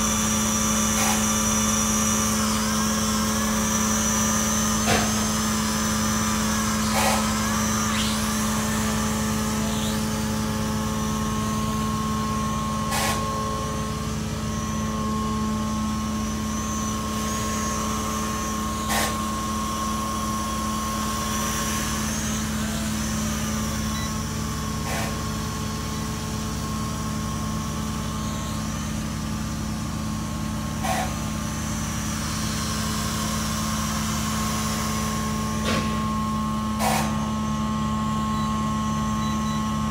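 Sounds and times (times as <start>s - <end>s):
drone propellers buzzing: 0.0s - 29.2s.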